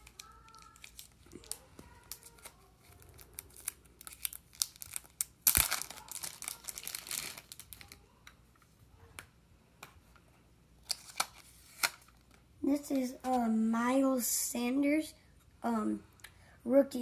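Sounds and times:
plastic wrapping crinkling: 0.0s - 8.1s.

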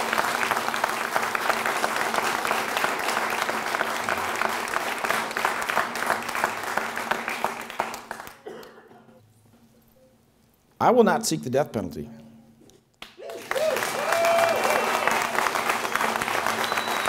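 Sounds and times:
crowd applauding: 0.0s - 8.5s, 13.0s - 17.0s.

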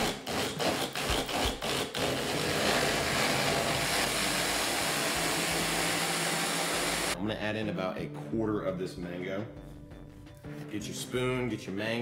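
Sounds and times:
blender chopping salsa: 0.0s - 7.2s.

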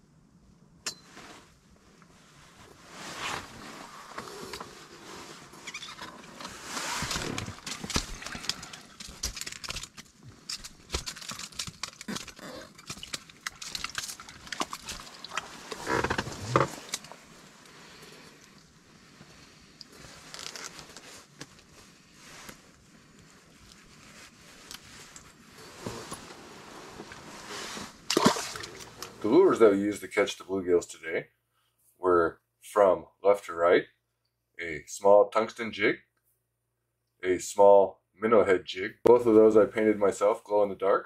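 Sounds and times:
jacket rustling: 1.0s - 29.6s
fishing gear clicks and knocks: 6.0s - 17.2s.

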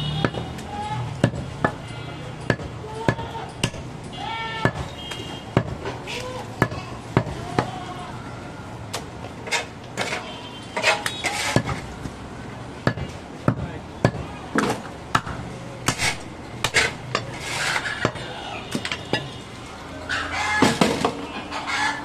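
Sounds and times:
knife chopping meat on wood: 5.6s - 5.8s.

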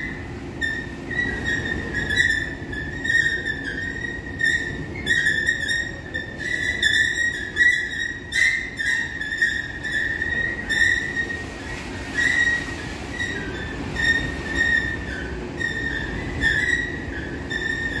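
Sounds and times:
escalator squealing: 0.0s - 18.0s.

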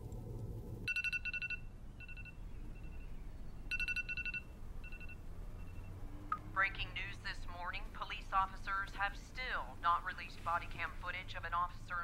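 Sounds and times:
trilled electronic beep: 3.7s - 5.9s.

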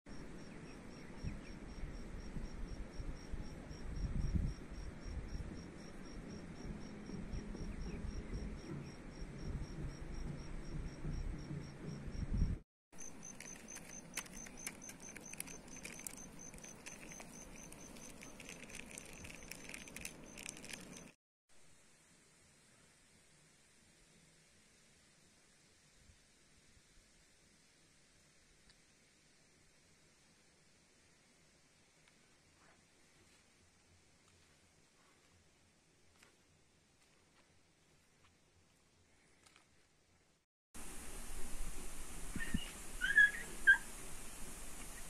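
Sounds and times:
insects chirping rapidly: 0.1s - 21.2s.

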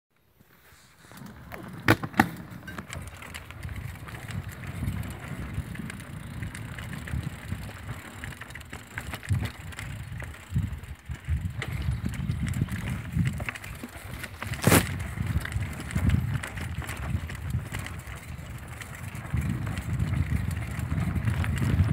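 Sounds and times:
mountain bike riding rumble: 0.6s - 21.9s
bike clacking over bumps: 1.2s - 21.9s.

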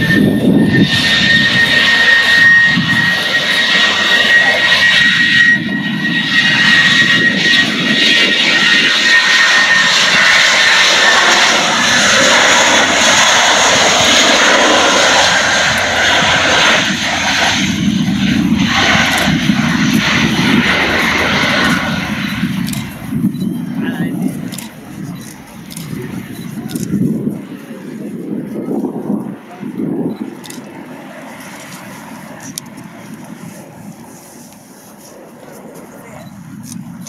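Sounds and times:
jet engine roar at takeoff: 0.0s - 37.0s.

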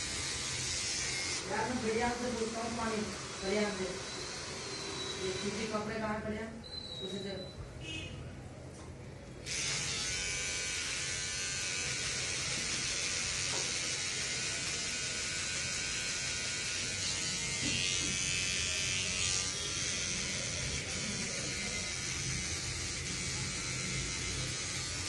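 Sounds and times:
electric hair clipper buzzing: 0.0s - 2.6s, 9.5s - 25.0s.

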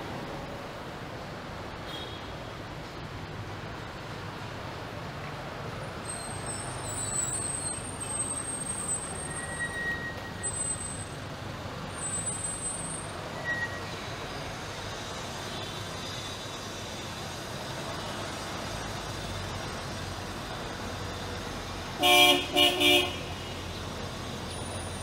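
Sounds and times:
hum of vehicles: 0.0s - 25.0s
high thin squeals: 6.1s - 11.2s, 11.9s - 14.1s.

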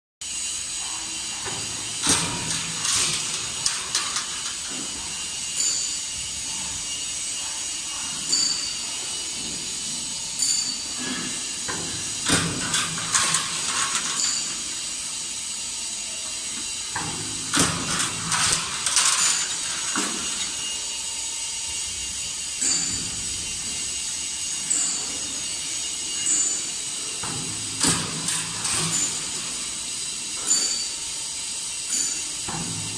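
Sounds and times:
roll forming machine hissing: 0.2s - 32.9s
metallic clicking and clatter: 1.4s - 6.7s, 10.4s - 15.0s, 16.9s - 21.0s, 26.2s - 29.8s.

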